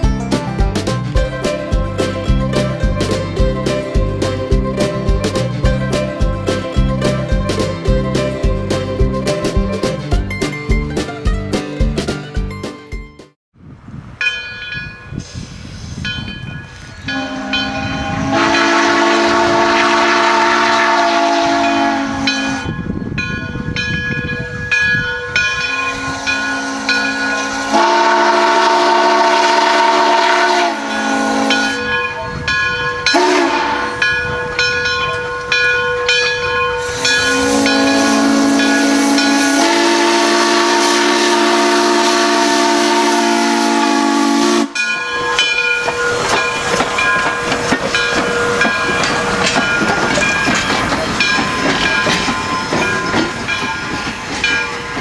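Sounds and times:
locomotive exhaust and steam hiss: 14.7 - 55.0
steam locomotive whistle: 17.0 - 22.8, 25.5 - 32.2, 32.9 - 34.6, 35.4 - 47.1.

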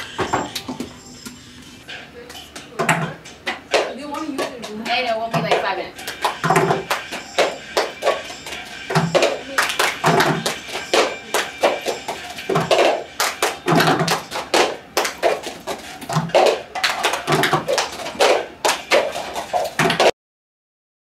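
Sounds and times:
hand claps: 3.7 - 20.1.

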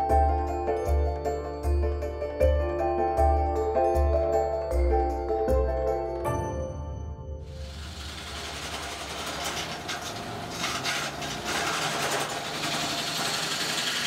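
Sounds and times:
wood lathe running: 7.5 - 14.0
hand rubbing turning wood: 7.8 - 14.0.

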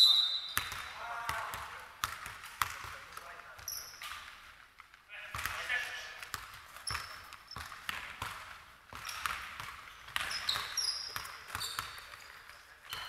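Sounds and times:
sneaker squeaks: 0.0 - 1.0, 3.6 - 4.4, 6.6 - 8.2, 8.9 - 13.0
basketball bouncing on hardwood: 0.6 - 4.2, 5.3 - 13.0.

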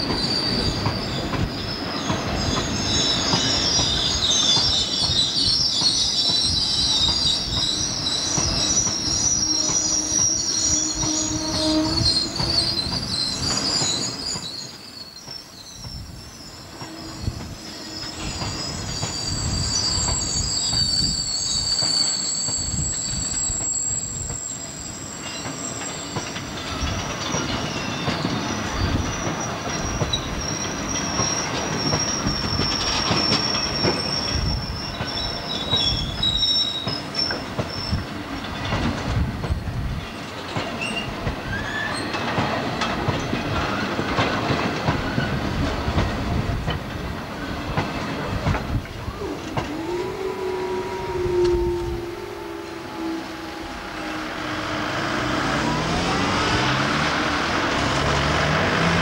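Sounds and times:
train wheels squealing: 0.0 - 59.0
wheels clattering over rail joints: 25.2 - 50.3.

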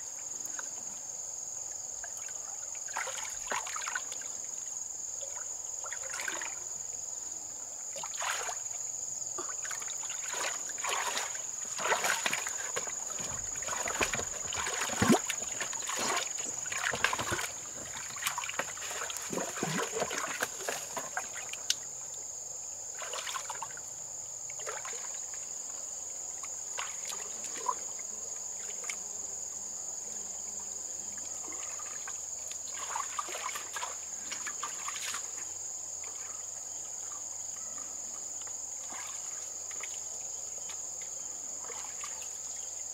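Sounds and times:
splashing in shallow water: 2.0 - 4.4, 5.2 - 6.7, 7.9 - 8.8, 9.4 - 22.0, 22.9 - 23.8, 24.5 - 25.2, 26.7 - 27.8, 31.4 - 36.4, 38.8 - 40.1, 41.6 - 42.4.

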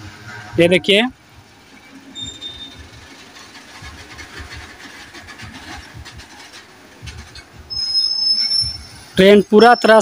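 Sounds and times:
steel wheels knocking on rails: 1.6 - 9.1.

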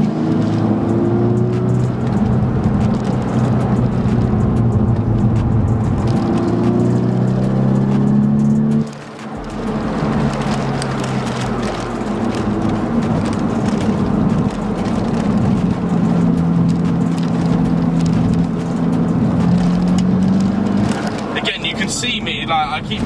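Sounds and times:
car engine running: 0.0 - 23.0
road and tyre noise: 0.0 - 23.0.

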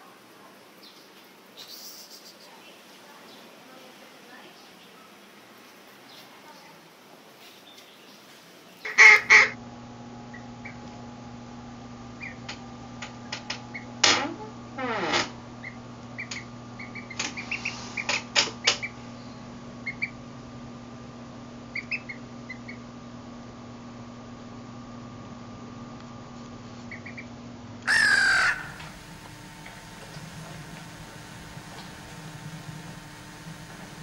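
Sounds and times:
low electrical hum: 0.0 - 34.0
ducklings peeping: 8.8 - 9.6, 12.2 - 12.4, 15.6 - 19.0, 19.8 - 20.2, 21.7 - 22.8, 26.9 - 27.3, 27.9 - 29.0.

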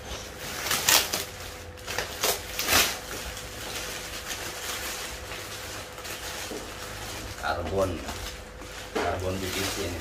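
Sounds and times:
plastic wrapping crinkling: 0.0 - 10.0.

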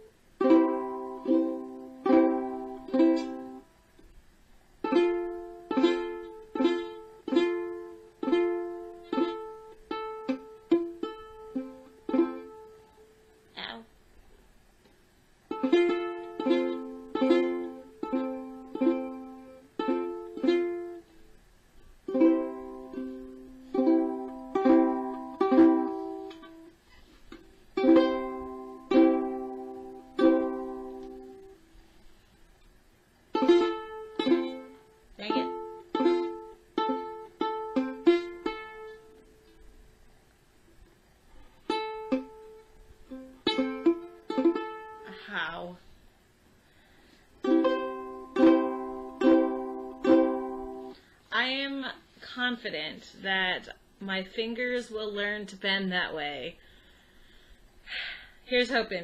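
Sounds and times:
ukulele strummed slowly: 0.0 - 4.1, 4.8 - 13.3, 15.5 - 21.4, 22.1 - 32.3, 33.3 - 39.8, 41.4 - 45.2, 47.0 - 51.1.

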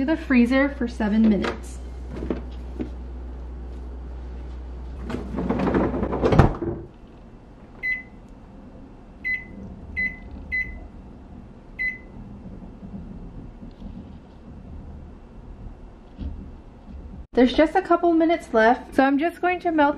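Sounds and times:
low hum: 0.0 - 18.8
freezer drawer sliding shut: 4.9 - 6.9
microwave keypad beeps: 7.8 - 8.2, 9.2 - 10.8, 11.8 - 12.1.

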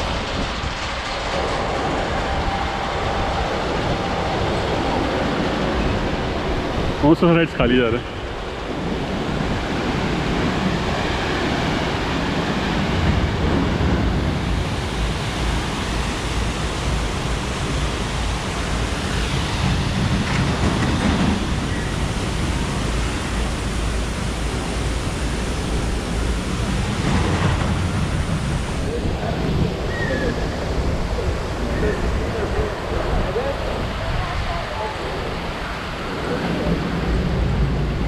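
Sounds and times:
wind buffeting microphone: 0.0 - 38.0.

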